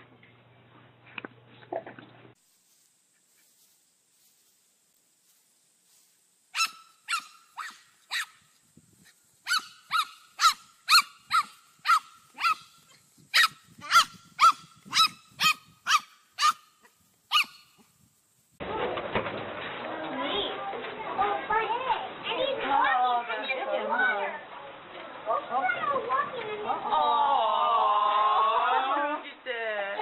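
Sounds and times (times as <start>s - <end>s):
dog barking: 6.6s - 8.3s, 9.5s - 12.7s, 13.4s - 16.7s, 17.3s - 17.6s.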